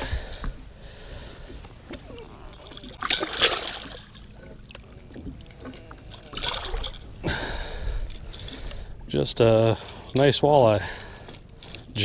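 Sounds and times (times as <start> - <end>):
low steady rumble: 0.0 - 12.0
water splashing: 1.5 - 7.7.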